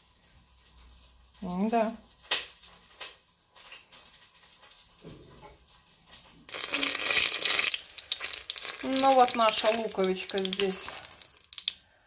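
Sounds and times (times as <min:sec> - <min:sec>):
onion sizzling in oil: 0:05.6 - 0:12.0.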